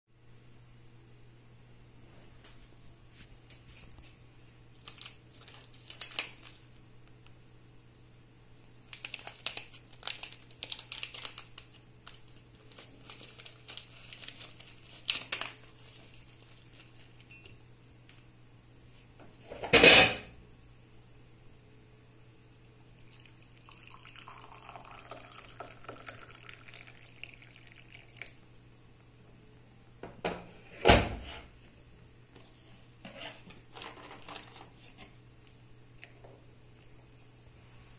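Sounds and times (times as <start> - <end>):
tea sachet crinkling and tearing: 4.8 - 6.6, 8.8 - 17.3, 23.1 - 28.4
water pouring into mug: 22.9 - 28.4.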